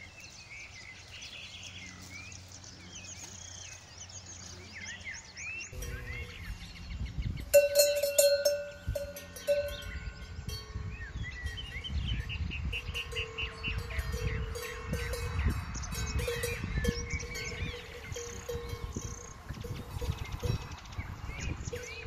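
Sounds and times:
small birds chirping: 0:00.0 - 0:22.0
cowbell clanking: 0:05.7 - 0:06.8, 0:07.5 - 0:22.0.

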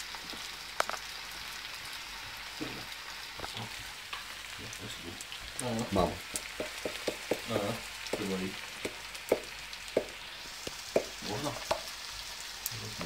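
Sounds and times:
food sizzling in a pan: 0:00.0 - 0:13.0
sharp pops and crackles: 0:00.2 - 0:01.1, 0:03.3 - 0:04.3, 0:05.2 - 0:12.0.

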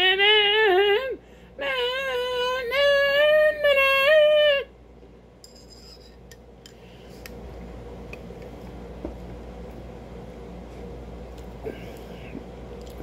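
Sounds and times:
person singing falsetto note: 0:00.0 - 0:04.7.

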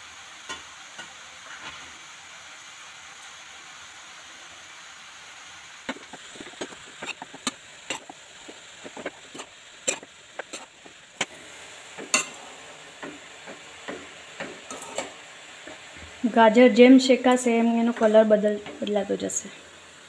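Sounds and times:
faint sizzle: 0:00.0 - 0:20.0
spatula scraping a pan: 0:01.4 - 0:02.0, 0:05.9 - 0:11.4, 0:12.0 - 0:15.9.

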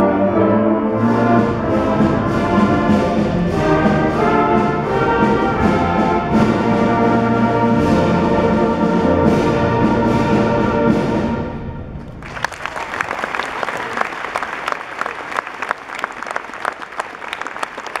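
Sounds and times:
audience applause: 0:12.1 - 0:18.0.

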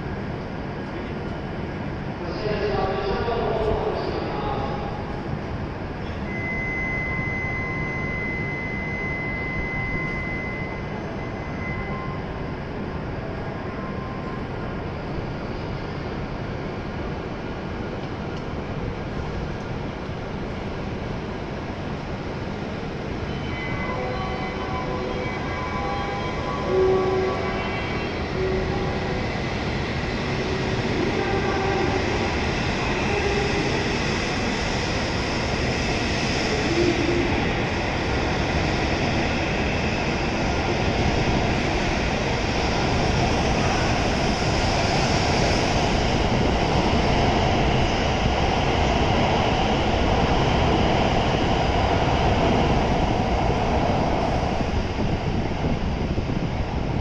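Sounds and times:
train accelerating away: 0:24.0 - 0:57.0.

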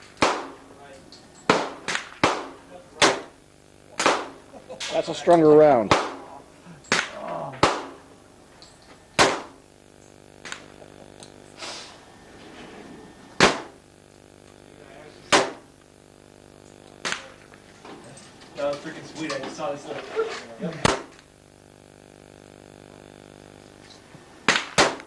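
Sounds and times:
revolver gunshots: 0:00.2 - 0:00.7, 0:01.4 - 0:04.5, 0:05.8 - 0:06.3, 0:06.9 - 0:08.1, 0:09.2 - 0:09.6, 0:13.4 - 0:13.8, 0:15.3 - 0:15.7, 0:20.8 - 0:21.1, 0:24.5 - 0:25.0.

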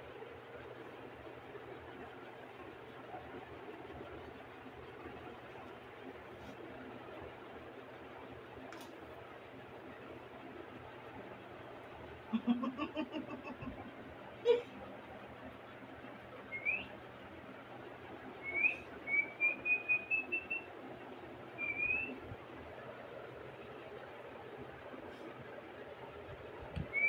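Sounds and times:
high whistled chirps: 0:16.5 - 0:16.9, 0:18.4 - 0:20.7, 0:21.6 - 0:22.2.

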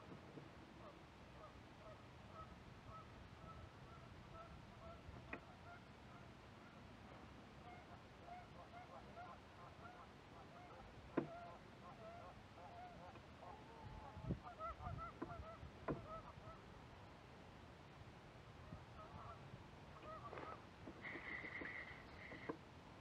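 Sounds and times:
geese honking: 0:19.0 - 0:19.4, 0:20.0 - 0:22.5.

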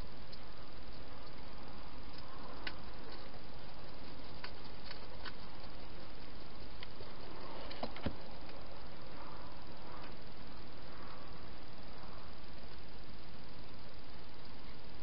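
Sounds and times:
steady hiss: 0:00.0 - 0:15.0
hedgehog feeding clicks and knocks: 0:02.1 - 0:08.6.

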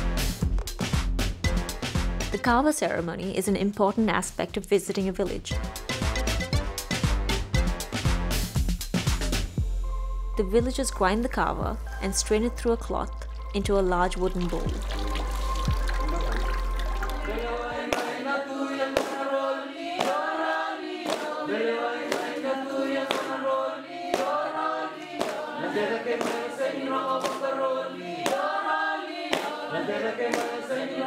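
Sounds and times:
group singing a chant: 0:17.2 - 0:31.0
sharp hand clap: 0:17.9 - 0:18.2, 0:18.9 - 0:19.3, 0:20.0 - 0:20.3, 0:21.0 - 0:21.4, 0:22.1 - 0:22.4, 0:23.0 - 0:23.4, 0:24.1 - 0:24.4, 0:25.0 - 0:25.5, 0:26.1 - 0:26.5, 0:27.2 - 0:27.5, 0:28.2 - 0:28.5, 0:29.3 - 0:29.6, 0:30.3 - 0:30.6.

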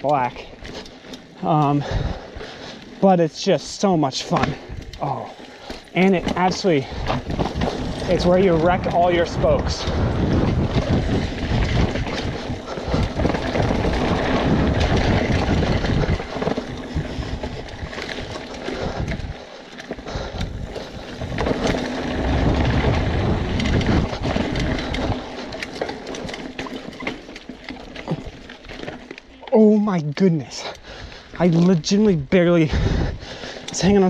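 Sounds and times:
bike clattering over rough ground: 0:00.0 - 0:34.0
wind buffeting microphone: 0:01.4 - 0:02.7, 0:04.4 - 0:26.8, 0:30.7 - 0:34.0.

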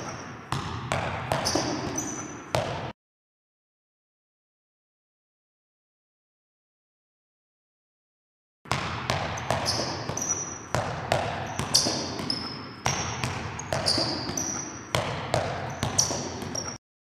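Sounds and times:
sneaker squeaks: 0:00.0 - 0:02.9, 0:09.1 - 0:16.8
basketball bouncing on gym floor: 0:00.0 - 0:03.0, 0:08.7 - 0:16.8.

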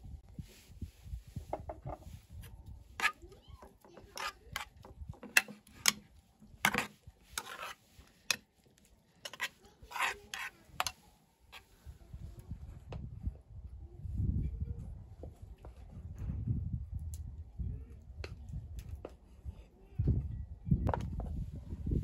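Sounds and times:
metal spoon scraping a bowl: 0:03.0 - 0:08.4, 0:09.2 - 0:11.7.

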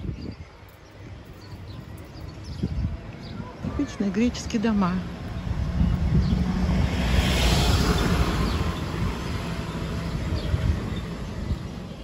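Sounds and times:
passing vehicle engine: 0:04.7 - 0:12.0.

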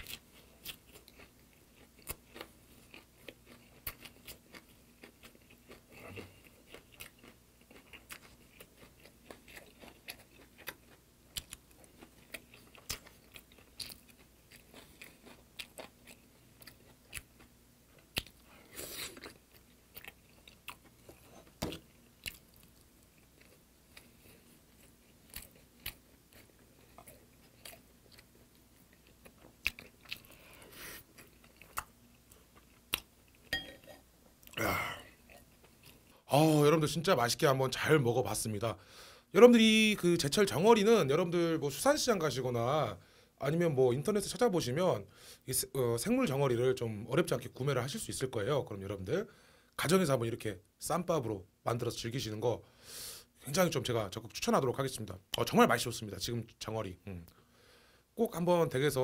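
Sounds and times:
man chewing with wet smacks: 0:00.0 - 0:33.6, 0:34.2 - 0:36.1.

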